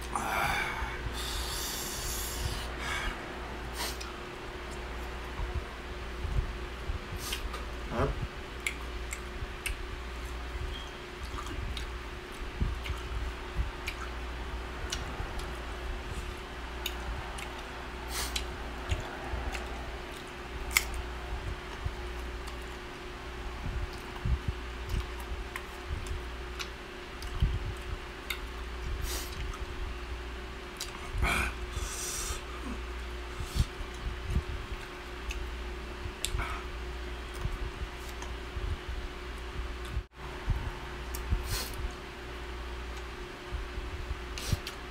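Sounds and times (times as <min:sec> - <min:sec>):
steady low hum: 0:00.0 - 0:44.9
person chewing wetly: 0:08.6 - 0:22.8, 0:23.8 - 0:28.7, 0:29.3 - 0:29.7, 0:30.8 - 0:31.1, 0:33.0 - 0:38.4.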